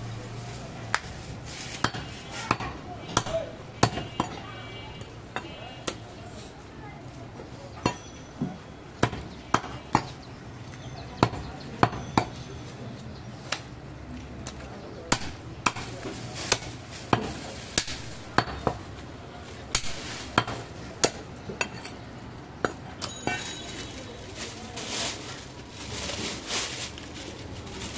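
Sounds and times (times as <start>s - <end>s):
cleaver chopping meat on wood: 15.1s - 15.9s.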